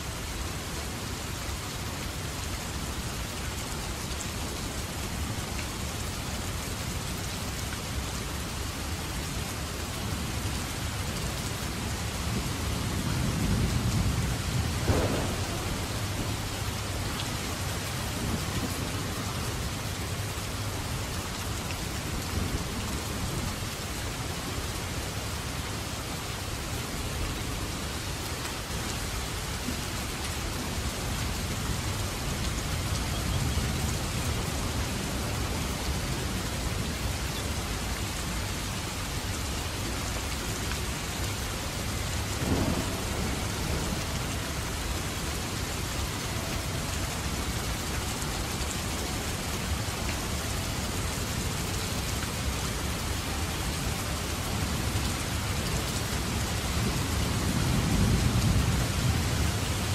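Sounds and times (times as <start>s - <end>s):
heavy rain pouring: 0.0s - 59.9s
thunder rumbling: 13.1s - 19.6s, 42.4s - 45.0s
sharp thunder crack: 14.8s - 16.6s.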